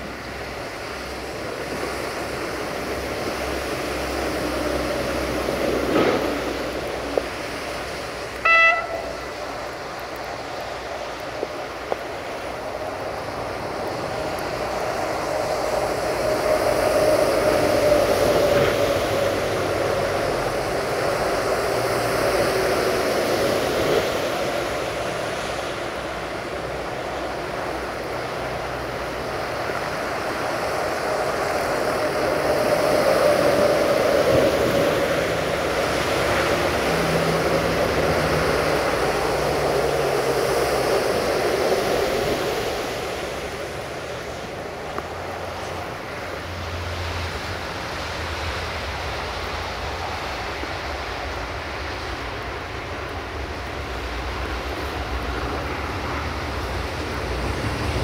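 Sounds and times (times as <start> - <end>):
diesel train engine running: 0.0 - 58.0
train horn toot: 8.4 - 9.4.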